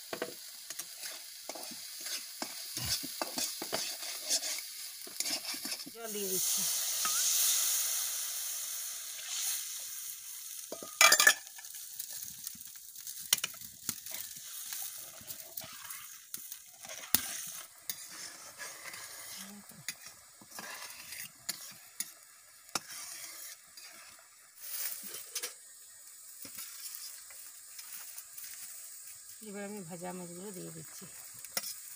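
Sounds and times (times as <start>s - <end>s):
oil sizzling and hissing: 0.0s - 31.9s
spatula scraping and knocking pan: 0.1s - 6.0s, 13.3s - 24.2s.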